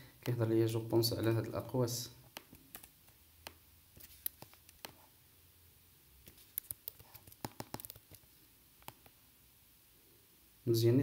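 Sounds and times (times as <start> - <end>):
keyboard typing: 2.3 - 5.1, 6.2 - 9.2
mouse clicks: 2.3 - 5.1, 6.2 - 8.2, 8.8 - 9.2.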